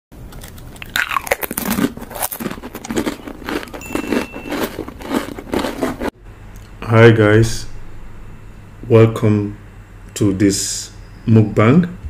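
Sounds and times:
crunching and crackling: 0.2s - 6.1s.

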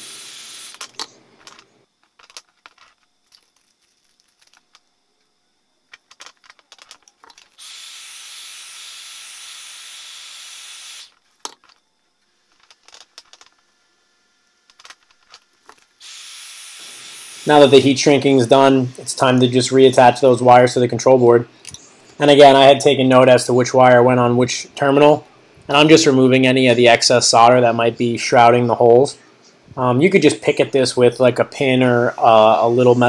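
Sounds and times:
heat gun blowing: 0.0s - 0.8s, 7.5s - 11.2s, 16.0s - 19.9s.

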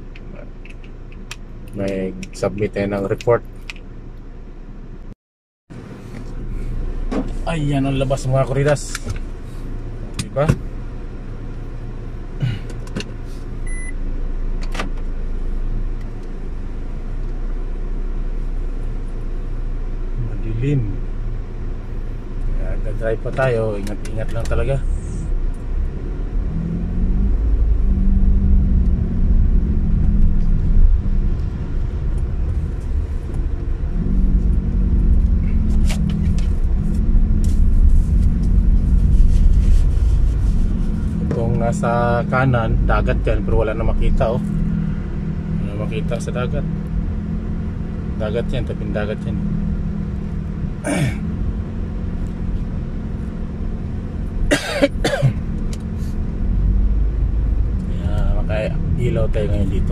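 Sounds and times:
road and engine rumble: 0.0s - 59.9s
steady low hum: 5.8s - 59.9s
person coughing: 50.8s - 51.2s, 54.5s - 55.4s.

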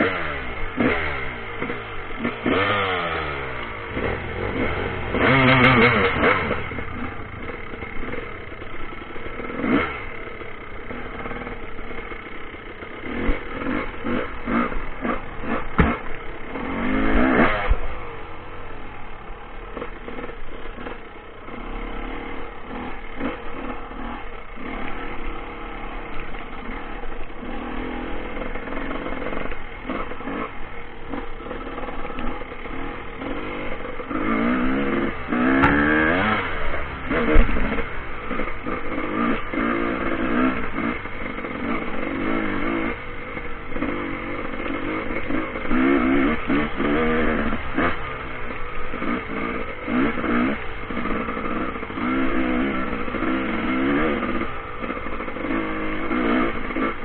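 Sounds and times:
dirt bike engine revving: 0.0s - 57.0s
bike rattling and knocking: 10.8s - 17.7s, 34.3s - 40.9s.

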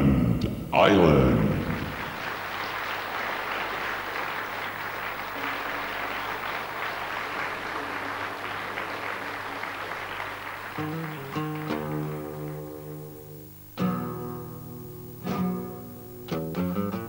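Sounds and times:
audience applauding: 0.8s - 13.4s
classical guitar playing: 10.8s - 17.0s.

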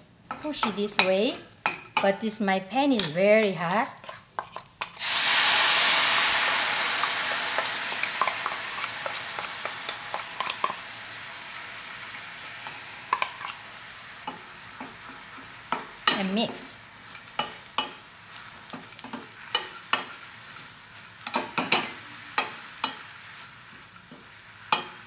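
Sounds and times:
bubbling sizzle: 0.0s - 25.0s
spoon stirring in pan: 3.0s - 5.0s, 7.0s - 11.0s, 12.6s - 25.0s
chopsticks scraping bowl: 3.6s - 5.0s
sauce hissing in hot pan: 4.9s - 25.0s.

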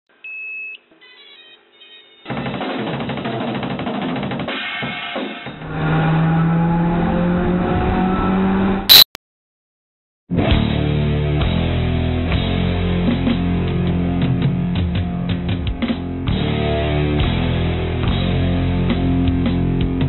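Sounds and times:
short beep: 8.9s - 9.1s
drum-heavy intro music: 10.3s - 20.0s.

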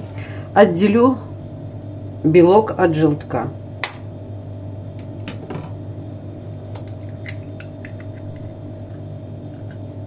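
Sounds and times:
steady low hum: 0.0s - 10.0s
eggshell crackling: 6.6s - 9.9s.

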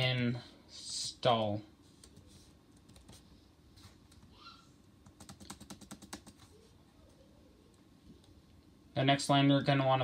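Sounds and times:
typing on laptop keyboard: 2.0s - 3.2s, 5.0s - 6.5s.

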